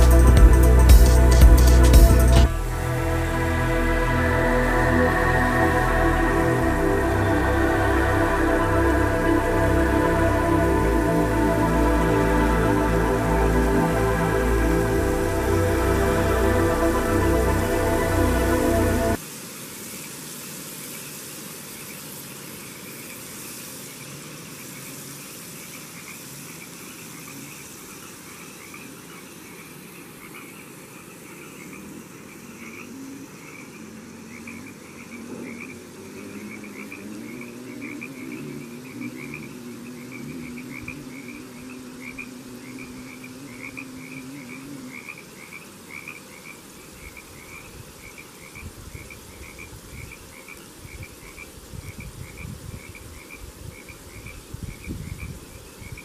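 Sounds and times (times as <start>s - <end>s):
faint low drone: 0.0s - 19.2s
frogs croaking: 3.9s - 19.2s, 20.8s - 56.0s.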